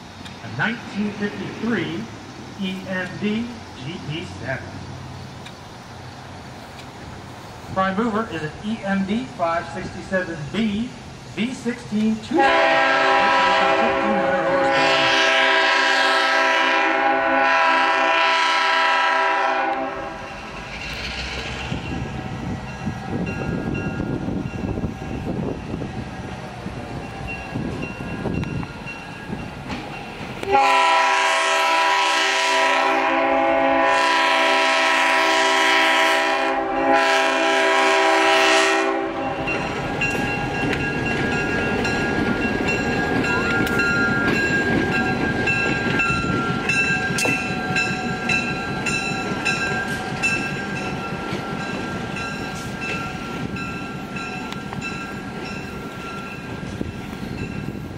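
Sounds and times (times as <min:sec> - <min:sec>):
diesel locomotive engine running: 0:00.0 - 0:57.9
wheels rumbling on rails: 0:00.0 - 0:57.9
locomotive air horn chord: 0:12.2 - 0:20.3, 0:30.4 - 0:39.5.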